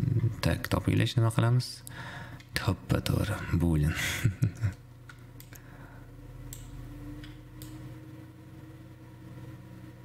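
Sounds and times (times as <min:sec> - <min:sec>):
steady low hum: 0:00.0 - 0:10.0
computer mouse clicks: 0:05.1 - 0:05.6, 0:06.5 - 0:07.8.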